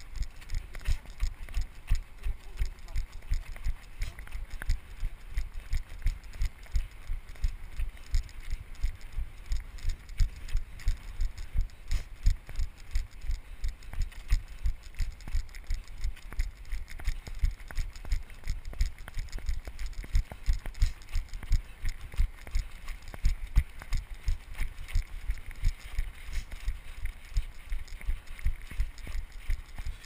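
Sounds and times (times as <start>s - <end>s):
running footsteps on snow: 0.0s - 30.0s.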